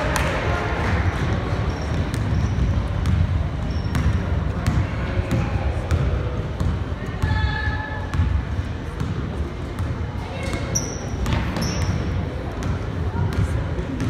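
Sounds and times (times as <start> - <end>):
murmur of voices: 0.0 - 14.0
basketball bouncing on hardwood floor: 1.9 - 6.8.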